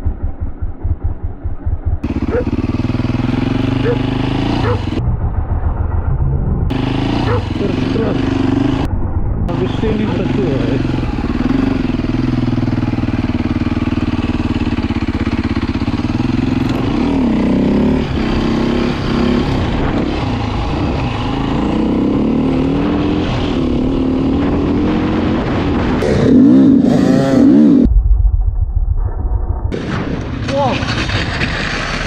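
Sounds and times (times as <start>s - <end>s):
dull low rumble: 0.0s - 21.3s, 23.4s - 32.0s
dirt bike engine revving: 0.9s - 5.0s, 6.7s - 8.9s, 10.0s - 27.9s.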